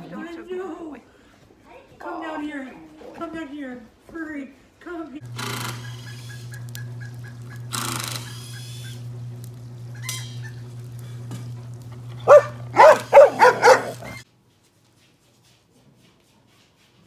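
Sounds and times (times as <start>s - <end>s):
steady low hum: 5.2s - 14.2s
dog barking: 12.2s - 14.2s.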